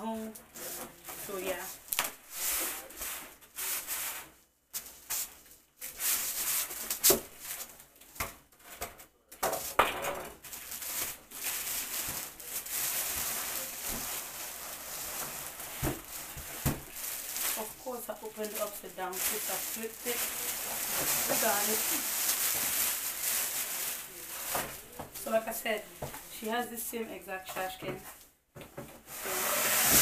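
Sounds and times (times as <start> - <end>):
plastic bag rustling: 0.0 - 8.0, 9.6 - 28.2
foam scraping out of cardboard box: 29.1 - 30.0.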